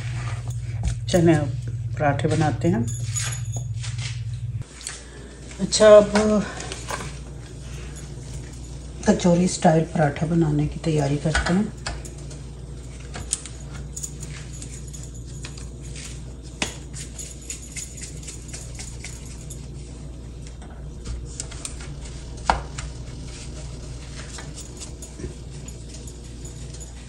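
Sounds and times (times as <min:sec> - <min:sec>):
hands working dough in flour: 0:00.0 - 0:27.0
steady low hum: 0:00.0 - 0:27.0
bangles clinking: 0:02.8 - 0:03.9, 0:11.8 - 0:19.7, 0:24.3 - 0:27.0.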